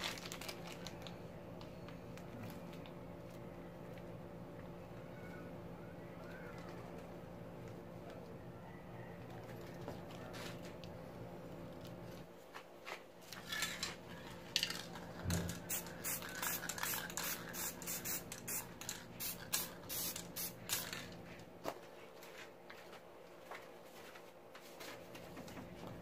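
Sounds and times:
spray can hissing bursts: 0:15.3 - 0:21.0.

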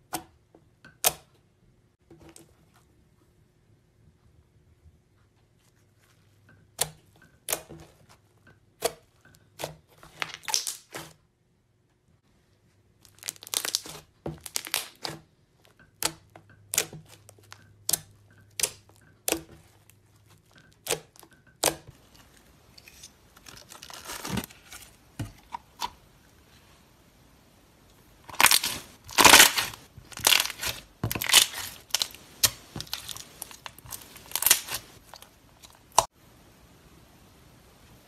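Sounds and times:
slime crackling: 0:13.0 - 0:15.2, 0:28.2 - 0:36.1.

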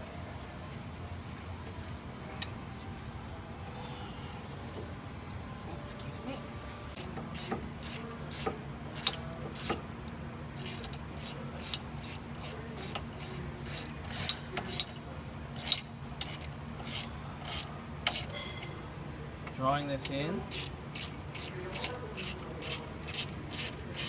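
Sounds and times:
ratchet wrench clicking: 0:07.0 - 0:09.8, 0:10.6 - 0:15.0, 0:15.6 - 0:18.3, 0:20.5 - 0:24.0.

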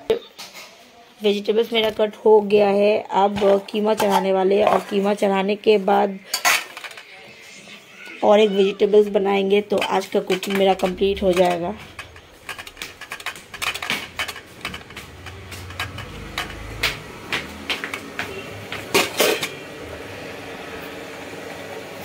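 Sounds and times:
steel bowls and utensils clattering: 0:03.4 - 0:05.4, 0:06.2 - 0:07.3, 0:08.9 - 0:19.7.

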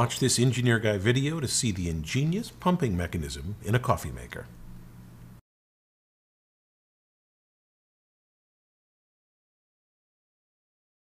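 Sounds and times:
faint low hum: 0:00.0 - 0:05.4.

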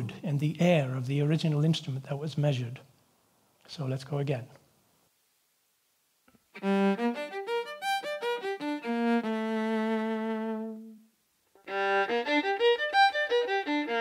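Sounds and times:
solo violin over loudspeakers: 0:06.6 - 0:11.0, 0:11.6 - 0:14.0.

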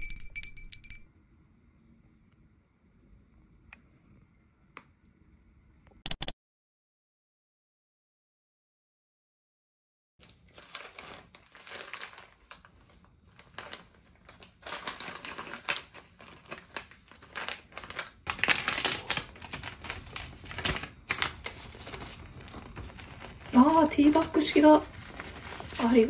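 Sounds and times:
packaging crinkling and rustling: 0:10.2 - 0:26.0.

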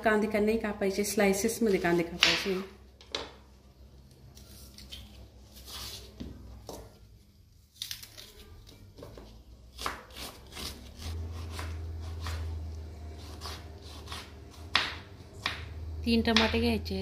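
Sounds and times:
onion layers snapping and tearing: 0:07.7 - 0:08.5.

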